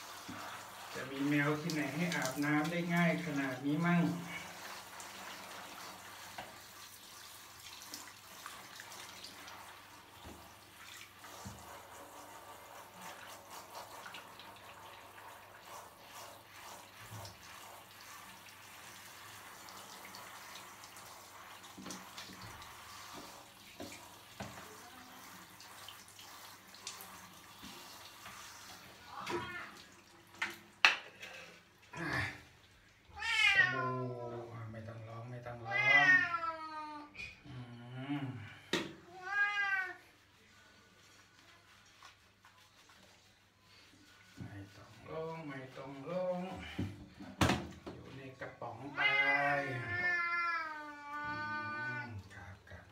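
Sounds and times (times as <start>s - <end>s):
shower spray running water: 0.0s - 37.3s, 38.4s - 52.9s
cat meowing: 33.2s - 34.1s, 35.6s - 37.1s, 39.1s - 40.0s, 48.9s - 52.2s.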